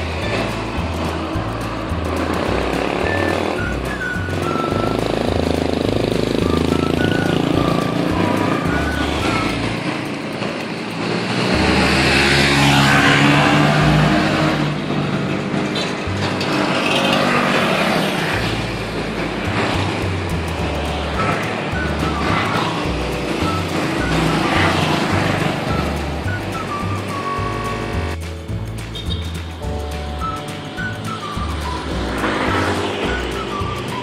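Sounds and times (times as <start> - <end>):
motor scooter riding past: 0.0 - 28.2, 30.5 - 34.0
street traffic: 0.0 - 34.0.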